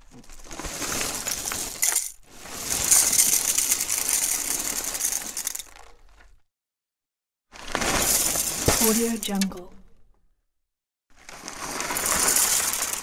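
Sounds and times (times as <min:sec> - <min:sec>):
cereal flakes poured into bowl: 0:00.1 - 0:06.3, 0:07.6 - 0:09.3, 0:11.2 - 0:13.0.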